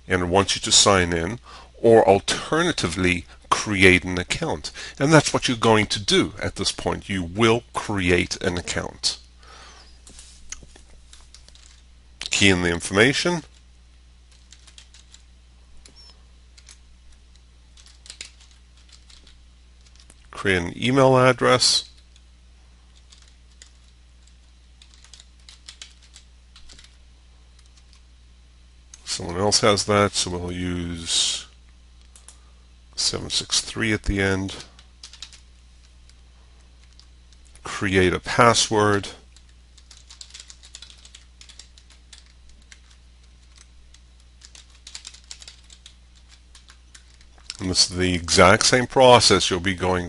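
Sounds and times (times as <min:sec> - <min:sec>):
faint low hum: 0:00.0 - 0:50.0
typing on computer keyboard: 0:14.3 - 0:15.2, 0:17.8 - 0:20.1, 0:23.0 - 0:27.0, 0:35.0 - 0:35.4, 0:39.3 - 0:47.6.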